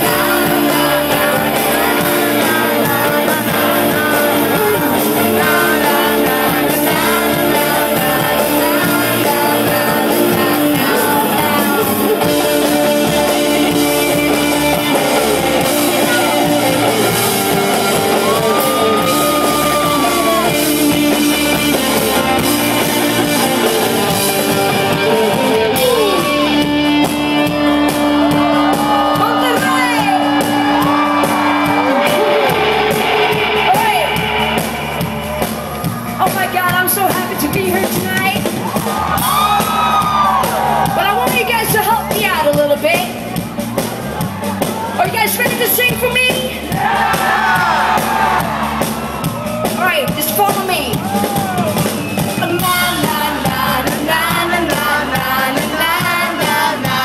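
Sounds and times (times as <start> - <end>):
person singing: 0.0 - 27.3, 52.4 - 57.0
rock band playing live: 0.0 - 57.0.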